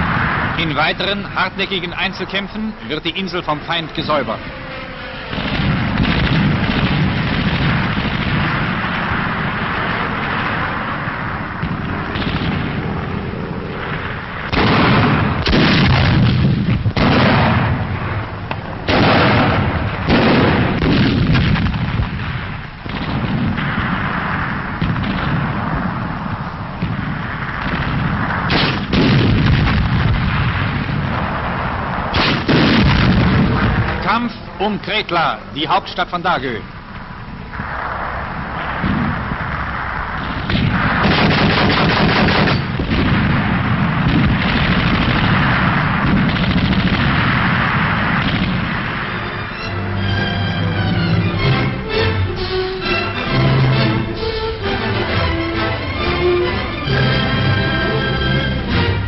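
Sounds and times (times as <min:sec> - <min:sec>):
gunfire: 0:00.0 - 0:01.2, 0:05.2 - 0:34.0, 0:38.5 - 0:49.7
explosions: 0:00.0 - 0:35.0, 0:36.6 - 0:52.2
continuous rumble: 0:00.0 - 0:59.0.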